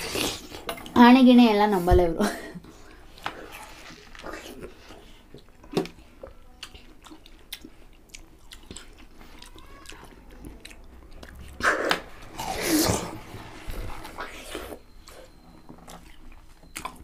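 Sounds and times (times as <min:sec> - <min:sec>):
people biting and chewing watermelon: 0:00.0 - 0:00.7, 0:02.8 - 0:17.0.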